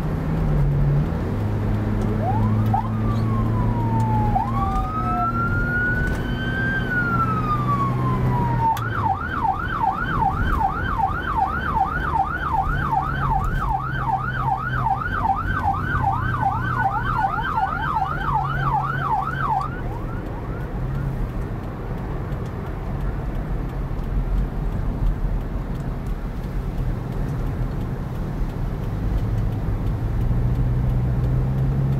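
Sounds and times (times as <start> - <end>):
car engine and tyre noise: 0.0 - 31.9
electronic police siren wailing and yelping: 2.1 - 21.1.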